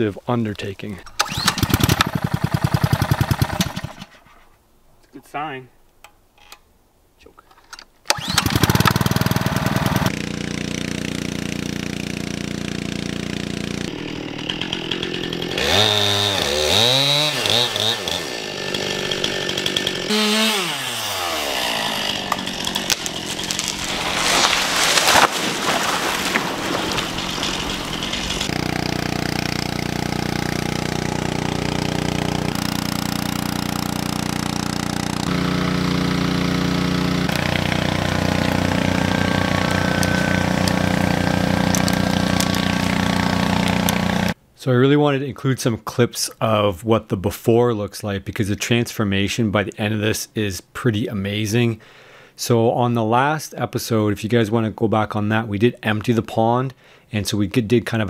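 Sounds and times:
gas engine pump running: 28.4s - 44.4s.

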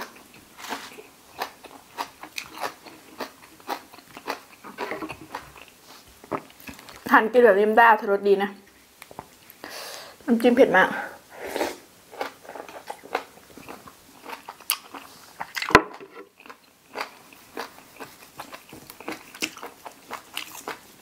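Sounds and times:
chewing crunchy cartilage: 0.0s - 7.1s, 12.1s - 21.0s.

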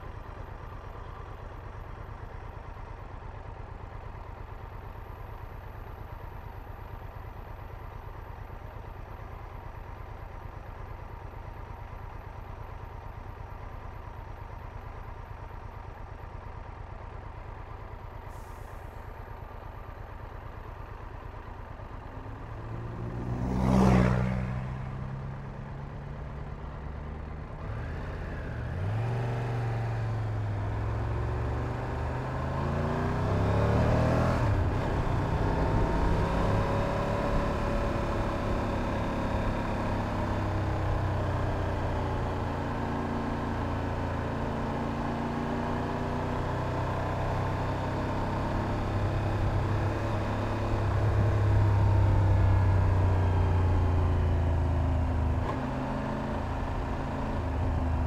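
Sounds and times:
motorcycle engine idling: 0.0s - 22.7s
vehicle passing close by: 22.8s - 25.2s
motorcycle pulling away: 27.6s - 58.0s.

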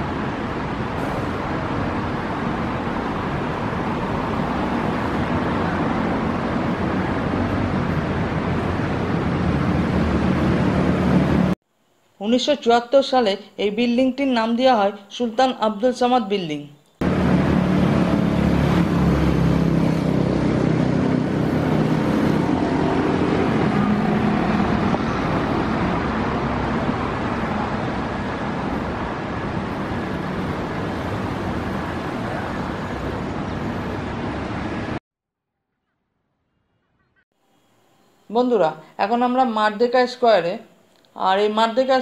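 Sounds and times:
road traffic rumble: 0.0s - 11.6s, 17.0s - 35.0s.

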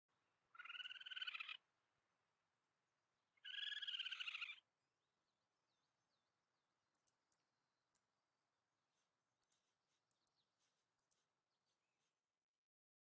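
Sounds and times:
raccoon trilling call: 0.5s - 1.6s, 3.4s - 4.6s.

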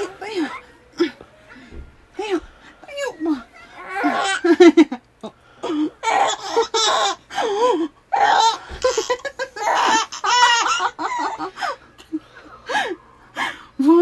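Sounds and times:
baby laughing: 3.3s - 4.9s, 5.6s - 12.2s.

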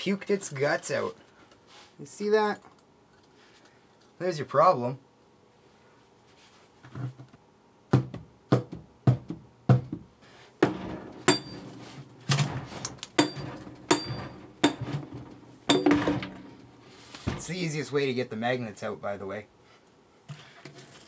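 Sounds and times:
hammer striking metal: 10.6s - 16.7s.

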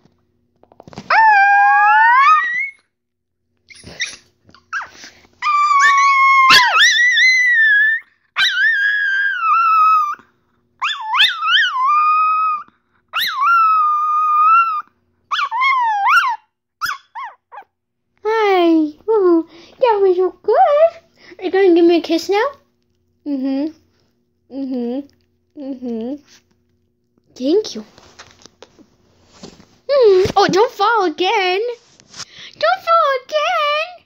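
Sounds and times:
dog howling: 1.1s - 2.8s, 5.4s - 10.2s, 10.8s - 17.6s.

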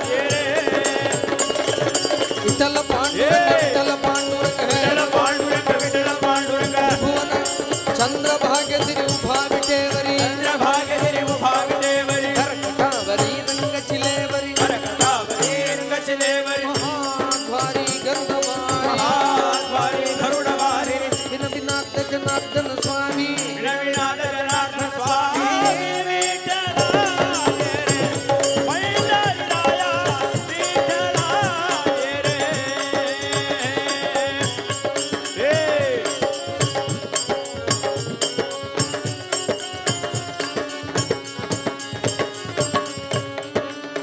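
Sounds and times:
group devotional singing: 0.0s - 7.9s, 9.7s - 21.8s, 23.2s - 34.5s
metallic hand percussion jingling: 0.0s - 44.0s.

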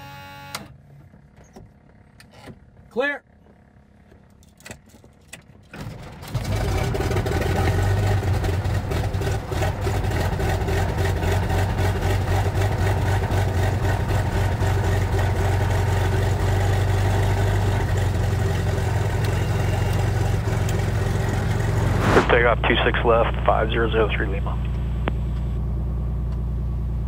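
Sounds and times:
aircraft engine idling: 6.4s - 27.0s.

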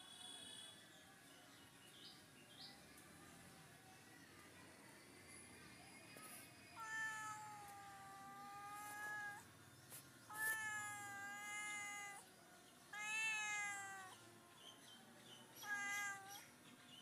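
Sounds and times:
cat meowing: 6.8s - 9.5s, 10.3s - 12.2s, 12.9s - 14.2s, 15.6s - 16.4s.

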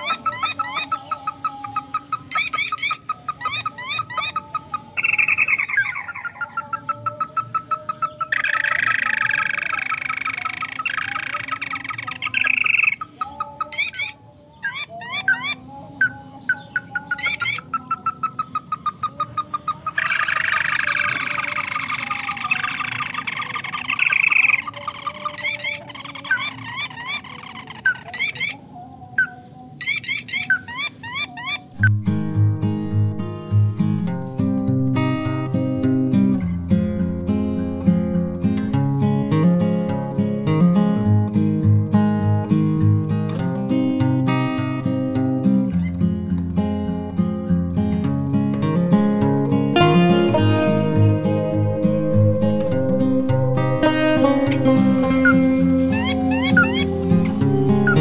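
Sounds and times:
crake calls: 0.0s - 31.9s, 48.6s - 58.0s
steady high thin tone: 49.4s - 58.0s.

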